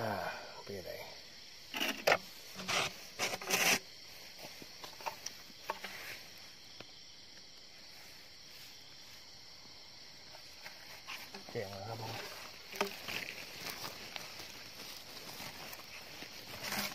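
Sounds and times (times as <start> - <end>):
pipe scraping against earth: 1.6 - 6.4, 10.3 - 16.9
faint ticks and rustles: 1.8 - 16.9.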